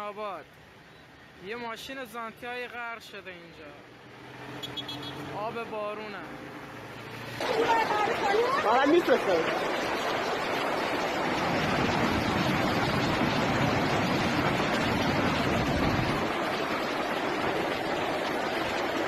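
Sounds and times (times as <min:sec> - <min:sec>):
floodwater rushing: 0:03.8 - 0:19.0.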